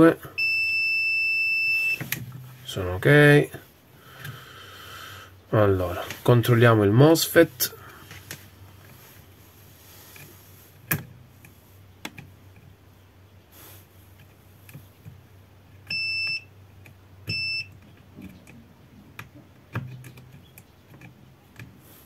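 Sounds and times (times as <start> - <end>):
multimeter short high beeps: 0.4 - 2.0, 15.9 - 16.5, 17.3 - 17.7.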